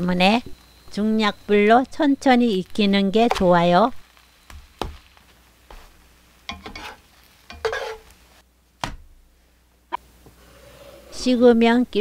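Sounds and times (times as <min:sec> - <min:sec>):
utensil scraping a frying pan: 0:06.5 - 0:08.2, 0:10.4 - 0:11.5.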